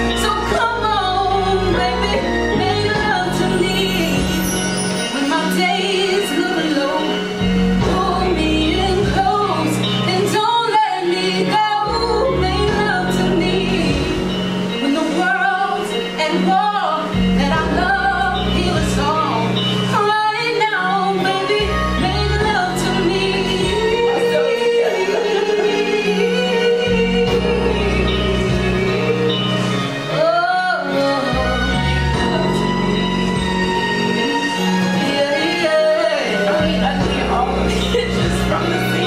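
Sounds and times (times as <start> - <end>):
instrumental accompaniment: 0.0 - 39.0
woman singing: 0.0 - 39.0.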